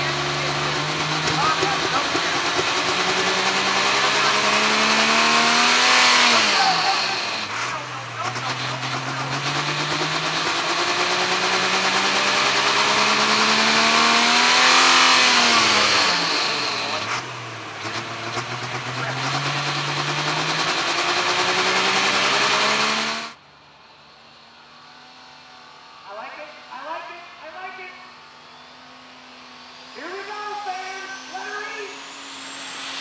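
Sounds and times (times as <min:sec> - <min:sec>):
tractor diesel engine under load: 0:00.0 - 0:23.4.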